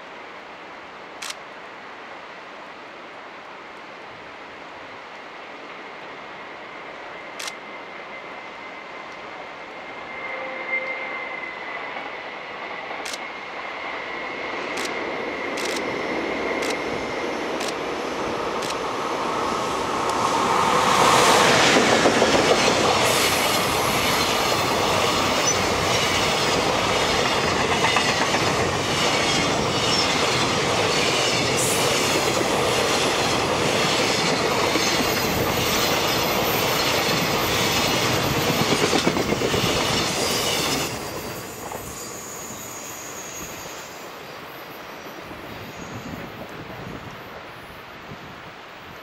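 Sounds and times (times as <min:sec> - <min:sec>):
freight train passing: 0:04.9 - 0:49.0
wheels clacking over rail joints: 0:21.5 - 0:41.8.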